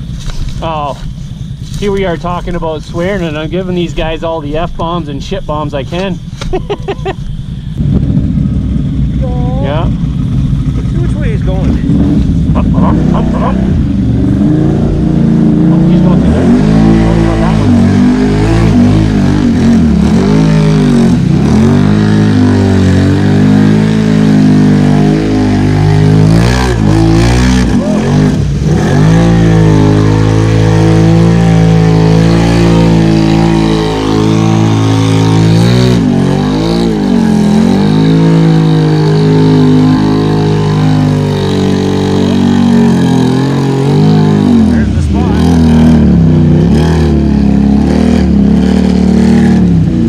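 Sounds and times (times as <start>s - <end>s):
atv engine revving: 0.0s - 50.0s
mud and water splashing: 10.7s - 50.0s.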